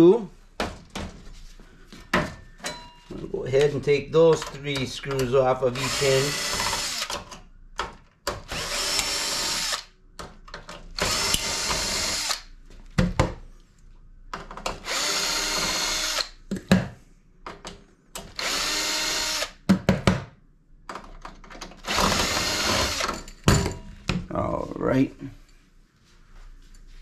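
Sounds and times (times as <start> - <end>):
cordless drill motor running: 5.8 - 7.1, 8.5 - 9.9, 11.0 - 12.5, 14.9 - 16.4, 18.4 - 19.6, 21.8 - 23.1.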